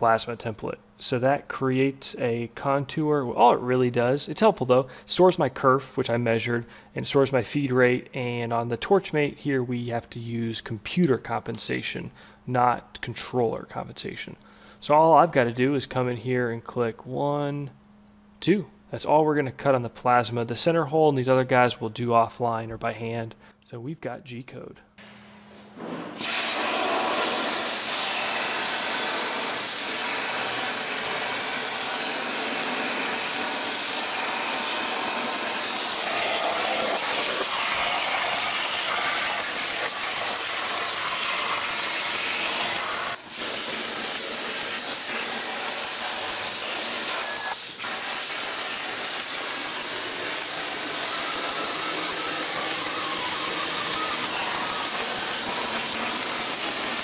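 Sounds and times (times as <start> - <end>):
plasma torch cutting steel: 25.1 - 57.0.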